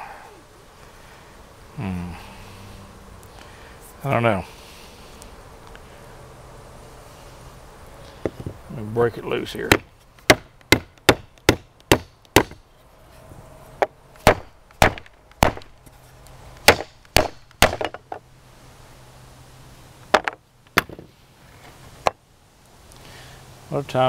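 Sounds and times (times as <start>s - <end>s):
sharp wooden knocks: 9.7s - 12.6s, 13.8s - 15.7s, 16.6s - 18.2s, 20.1s - 21.1s.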